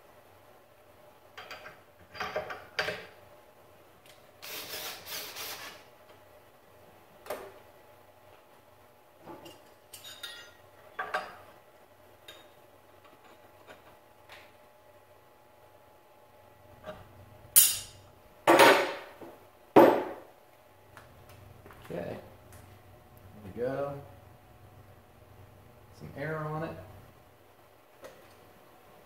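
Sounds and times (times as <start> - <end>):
metal tools clinking and knocking: 9.4 - 11.4.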